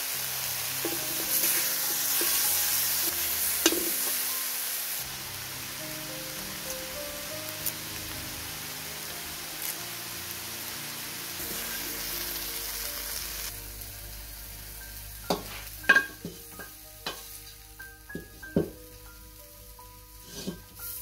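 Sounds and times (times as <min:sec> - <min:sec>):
background music: 0:00.0 - 0:21.0
food sizzling in oil in a wok: 0:00.0 - 0:21.0.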